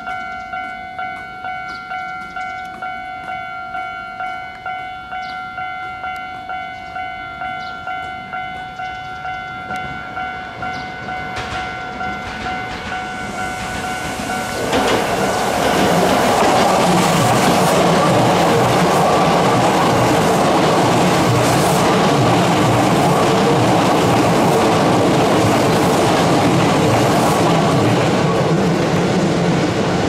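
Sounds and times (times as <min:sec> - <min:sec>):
level-crossing alarm ringing: 0:00.0 - 0:28.8
train wheels on rail: 0:00.0 - 0:30.0
electric train running: 0:09.7 - 0:30.0.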